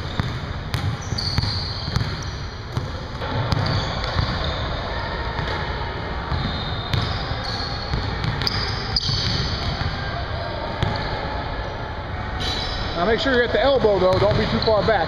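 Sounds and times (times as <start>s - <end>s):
basketballs bouncing on wooden floor: 0.0s - 4.4s, 6.3s - 7.2s, 14.1s - 15.0s.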